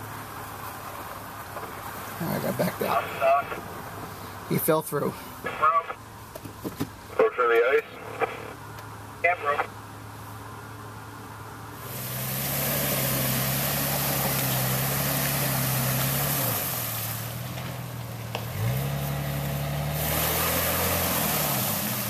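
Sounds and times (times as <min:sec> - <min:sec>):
car engine revving: 0:07.2 - 0:22.0.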